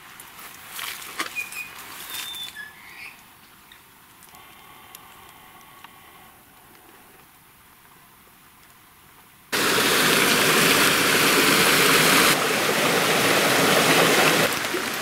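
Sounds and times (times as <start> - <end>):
leaves and twigs rustling and snapping: 0.0 - 2.7
whistled bird notes: 1.3 - 3.2.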